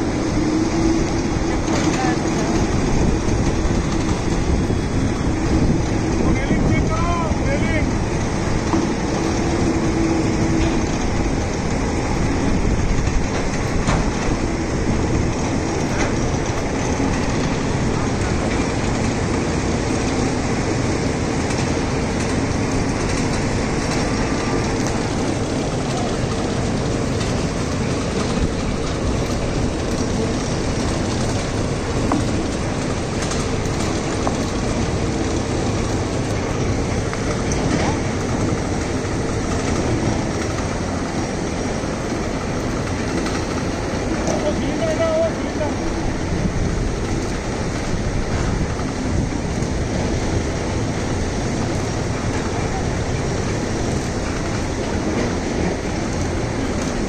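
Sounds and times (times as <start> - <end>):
crane mechanical running noise: 0.0 - 57.0.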